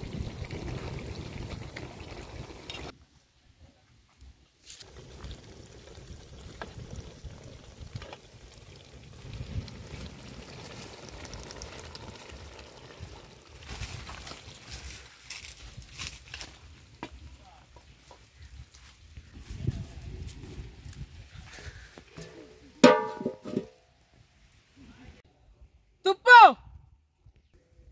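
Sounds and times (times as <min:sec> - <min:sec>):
meat sizzling in a pot: 0:04.8 - 0:14.9.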